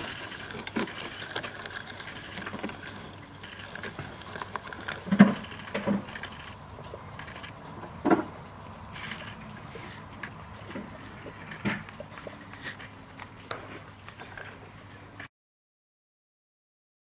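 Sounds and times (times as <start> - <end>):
model train rolling on track: 0.0 - 6.6.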